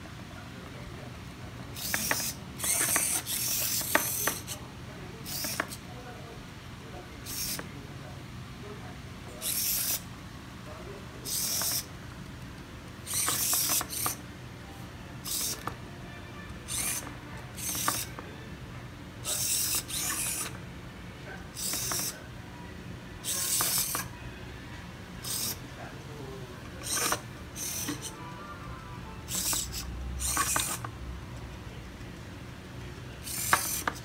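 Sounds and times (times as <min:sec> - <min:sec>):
servos whirring: 0:01.7 - 0:05.8, 0:07.2 - 0:07.7, 0:09.3 - 0:10.1, 0:11.2 - 0:11.9, 0:13.0 - 0:14.2, 0:15.2 - 0:15.8, 0:16.7 - 0:18.2, 0:19.2 - 0:20.6, 0:21.5 - 0:22.3, 0:23.2 - 0:24.2, 0:25.2 - 0:25.6, 0:26.7 - 0:28.2, 0:29.3 - 0:30.9, 0:33.2 - 0:34.0.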